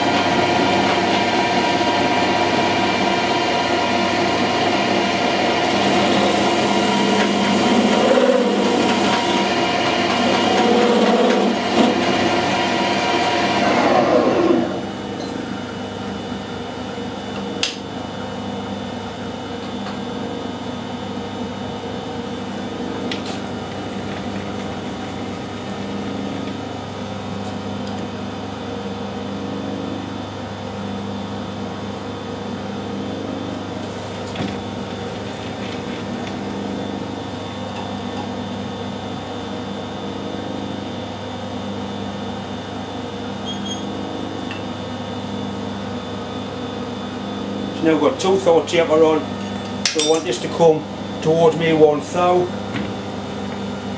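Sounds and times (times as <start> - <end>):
lathe motor humming: 0.0 - 15.0, 22.4 - 27.4.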